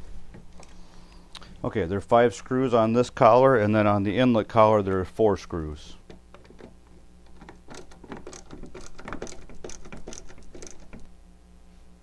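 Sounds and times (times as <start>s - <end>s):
screwdriver clicking: 6.1s - 11.1s.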